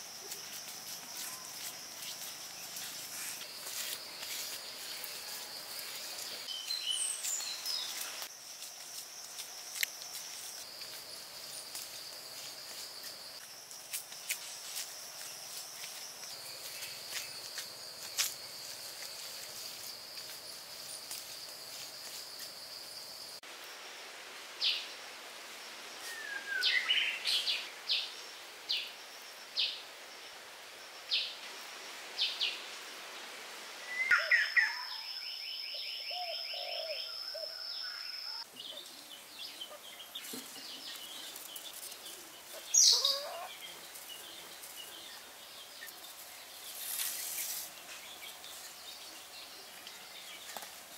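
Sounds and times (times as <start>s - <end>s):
birds chirping: 36.0s - 50.7s.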